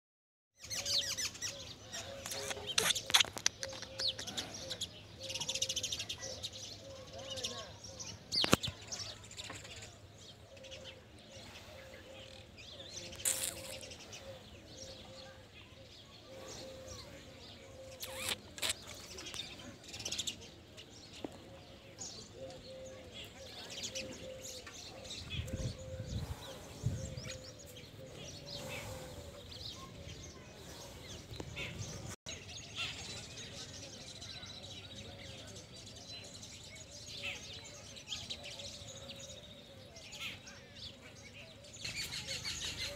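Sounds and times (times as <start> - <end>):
small birds chirping: 0.6 - 42.9.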